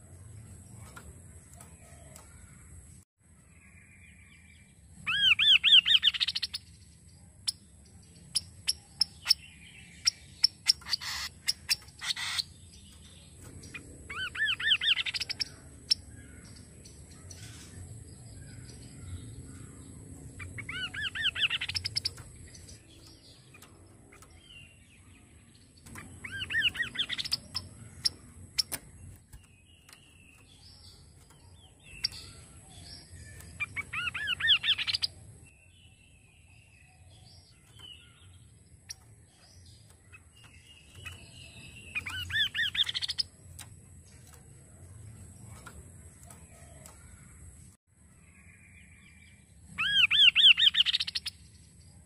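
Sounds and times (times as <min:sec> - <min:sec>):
soft bird chirps: 0:00.0 - 0:52.0
sharp clicks: 0:25.8 - 0:35.2.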